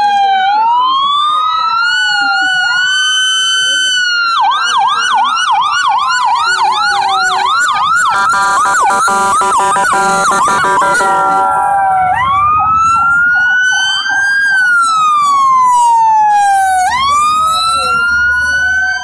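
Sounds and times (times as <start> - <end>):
fire truck siren: 0.0 - 19.0
steady blaring horn tone: 7.9 - 13.1.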